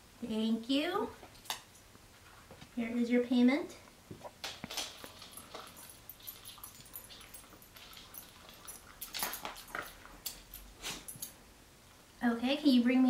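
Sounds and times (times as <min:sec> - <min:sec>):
dog crunching kibble: 0:04.3 - 0:11.3.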